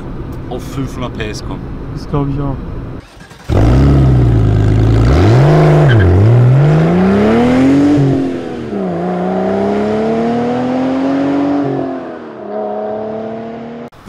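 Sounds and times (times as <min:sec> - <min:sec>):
car engine accelerating: 0:03.0 - 0:14.0.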